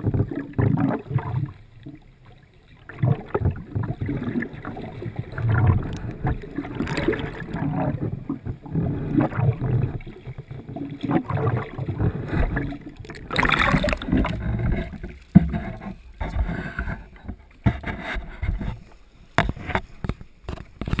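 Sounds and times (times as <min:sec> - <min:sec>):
water splash: 0:00.0 - 0:17.0
water sloshing and gurgling: 0:00.0 - 0:21.0.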